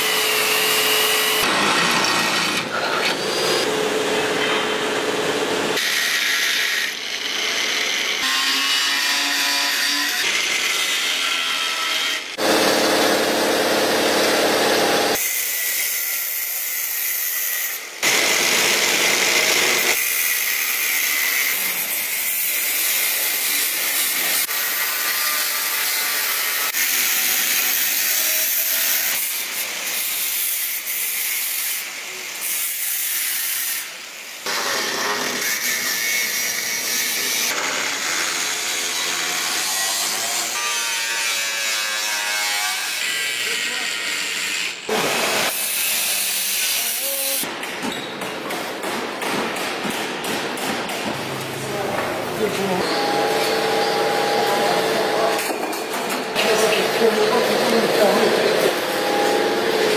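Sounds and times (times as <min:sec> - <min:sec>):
angle grinder cutting steel: 0:00.0 - 0:47.5, 0:52.4 - 0:59.9.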